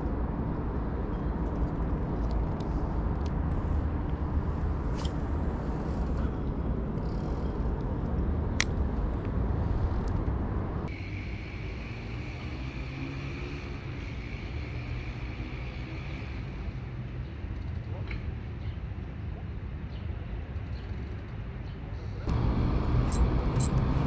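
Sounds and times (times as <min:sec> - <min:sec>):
outdoor background rumble: 0:00.0 - 0:24.0.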